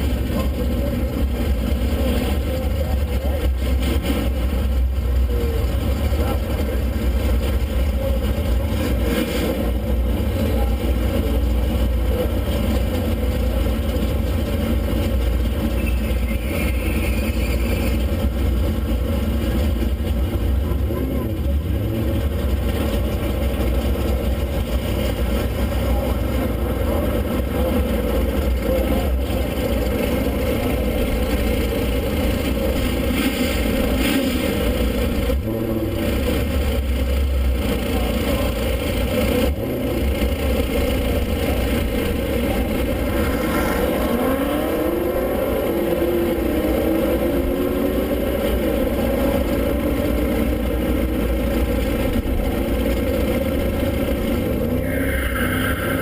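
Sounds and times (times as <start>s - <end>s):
car engine idling: 0.0s - 56.0s
engine revving: 5.6s - 56.0s.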